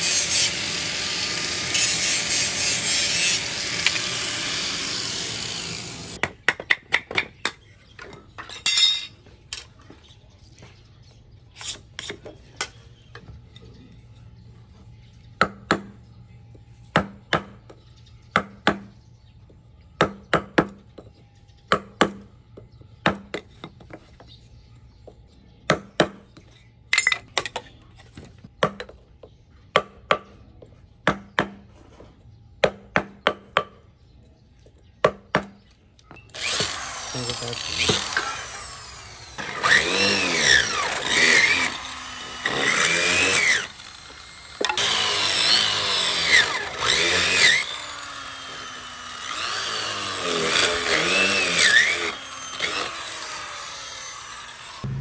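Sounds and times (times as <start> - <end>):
angle grinder cutting bamboo: 0.0 - 6.2, 36.3 - 55.0.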